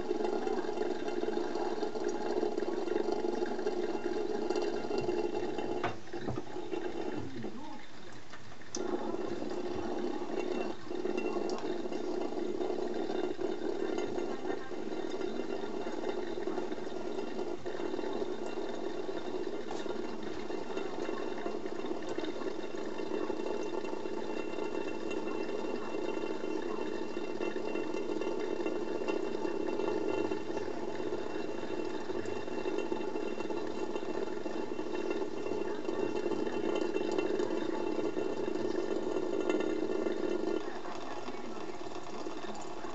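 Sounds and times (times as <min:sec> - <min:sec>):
tap water running into sink: 0:00.0 - 0:42.9.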